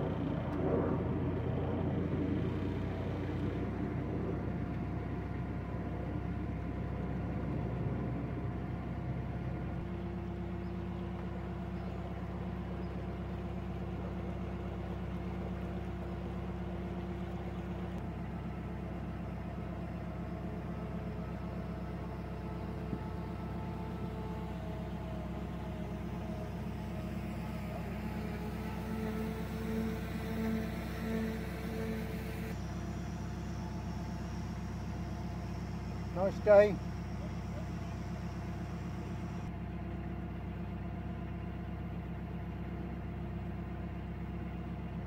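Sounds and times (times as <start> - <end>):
pulsing throb: 0.0 - 10.0
boat engine running: 0.0 - 45.0.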